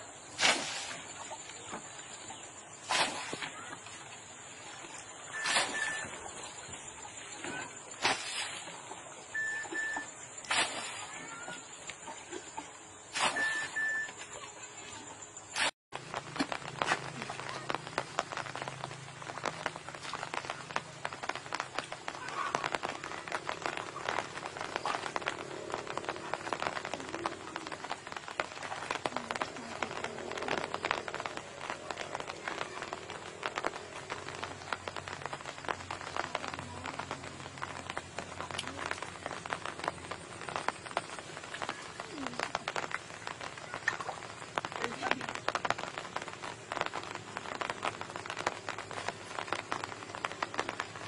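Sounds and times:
splashing through muddy water: 0:00.1 - 0:51.0
small clicks and drips: 0:16.1 - 0:51.0.

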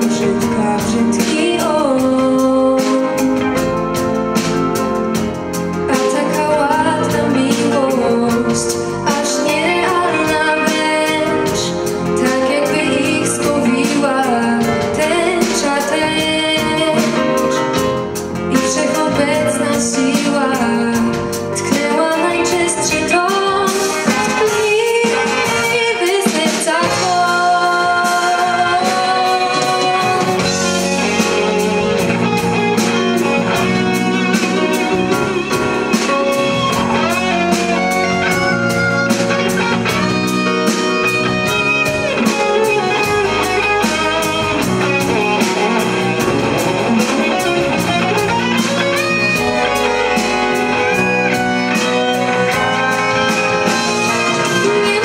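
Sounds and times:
bass guitar: 0:00.0 - 0:55.0
drum kit beat: 0:00.0 - 0:55.0
keyboards: 0:00.0 - 0:55.0.

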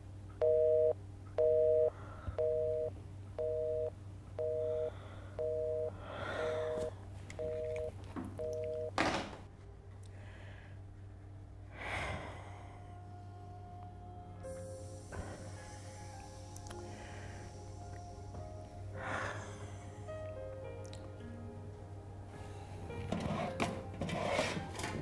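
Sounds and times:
telephone busy tone beeping: 0:00.4 - 0:06.0, 0:07.4 - 0:09.0.

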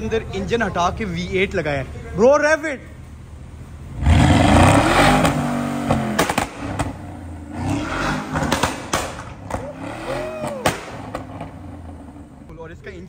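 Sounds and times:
sharp exhaust cracks: 0:03.5 - 0:12.7
car engine revving: 0:03.6 - 0:12.5.

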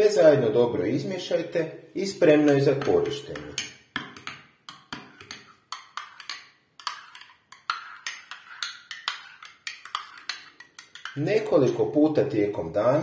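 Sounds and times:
metal spoon clinking in cup: 0:04.9 - 0:11.2.

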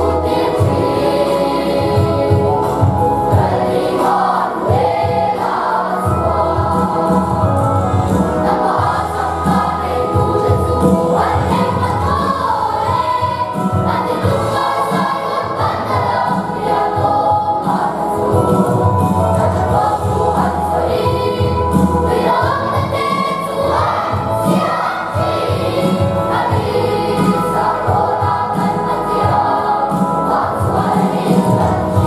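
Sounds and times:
children's choir singing: 0:00.0 - 0:32.0.

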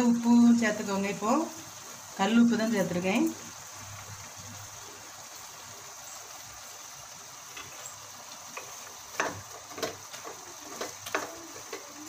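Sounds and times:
chicken sizzling in pot: 0:00.0 - 0:12.0
spoon scraping pot: 0:08.6 - 0:12.0.

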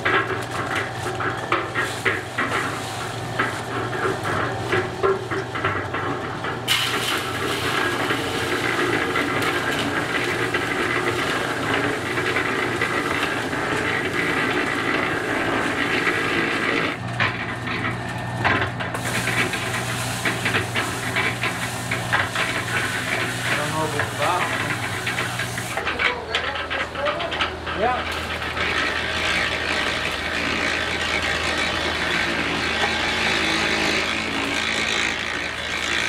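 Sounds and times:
concrete churning in drum: 0:00.0 - 0:36.0
concrete mixer motor hum: 0:00.0 - 0:36.0.

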